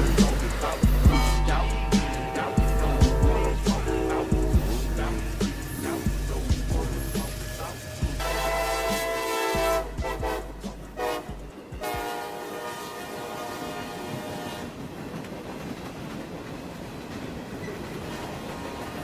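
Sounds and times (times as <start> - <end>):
locomotive horn blasts: 0.0 - 5.5, 8.2 - 14.8
boxcars rolling on rails: 0.0 - 19.0.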